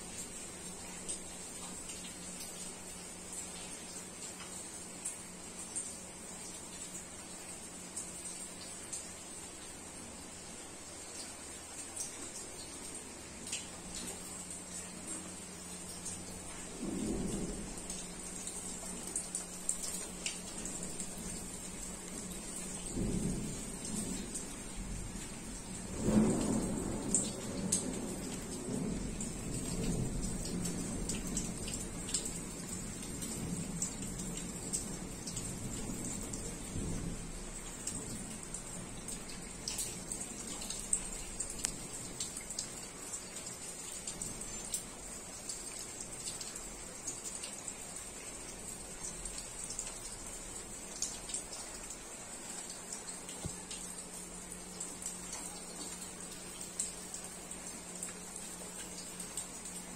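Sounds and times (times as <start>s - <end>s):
rain drops ticking and splashing: 0.0s - 59.9s
low rumble of thunder: 16.0s - 42.3s.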